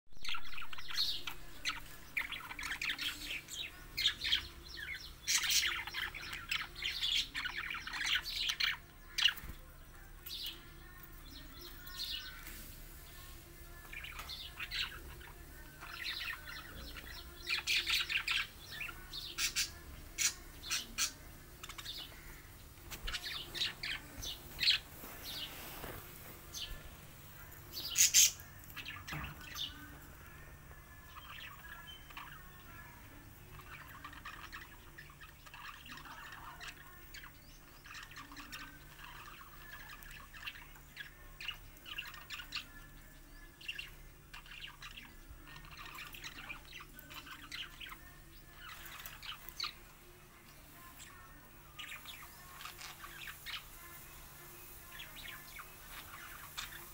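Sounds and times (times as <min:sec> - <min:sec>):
budgerigars chirping: 0:14.0 - 0:25.5.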